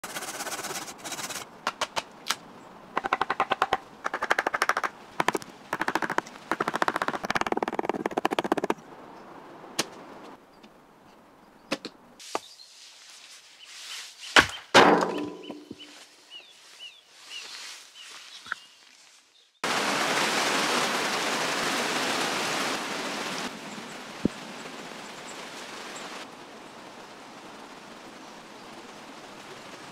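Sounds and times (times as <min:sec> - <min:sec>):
bird chirping: 0:13.6 - 0:19.6.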